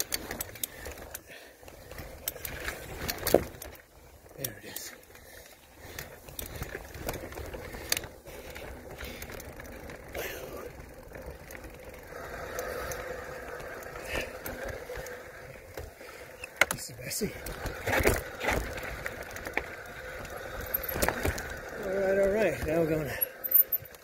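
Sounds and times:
bike rattles and knocks: 0.0s - 24.0s
bike tyre rumble on rock: 0.0s - 24.0s.

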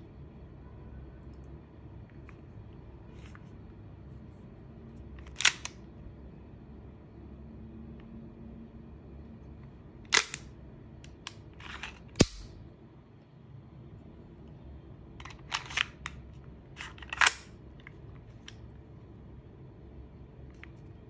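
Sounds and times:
pistol slide and magazine clicks: 5.2s - 5.8s, 10.1s - 10.5s, 11.2s - 12.6s, 16.8s - 17.5s.

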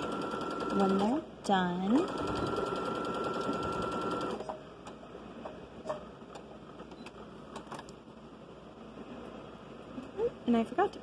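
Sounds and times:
sewing machine stitching: 0.0s - 1.2s, 1.9s - 4.6s.

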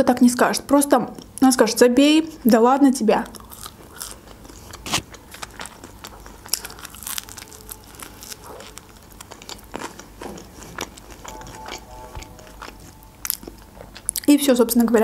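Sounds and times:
chewing crunchy bread: 3.2s - 14.9s.

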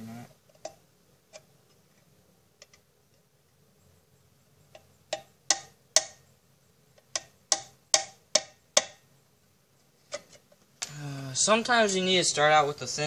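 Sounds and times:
hammer tapping nail into metal can: 5.1s - 6.2s, 7.1s - 9.0s.

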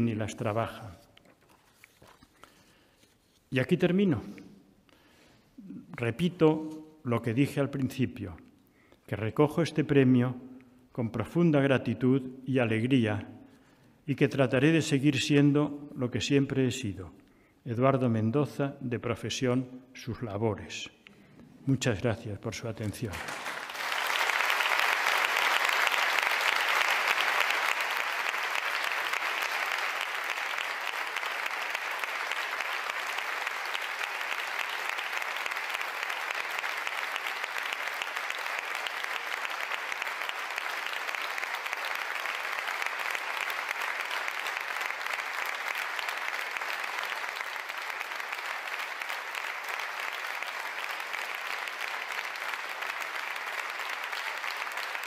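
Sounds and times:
audience applauding: 23.0s - 55.0s.

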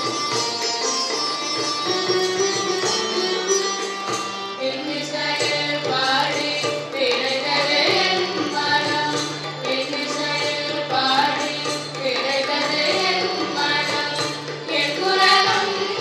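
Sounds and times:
keyboard and percussion: 0.0s - 16.0s
group singing devotional song: 4.9s - 16.0s.

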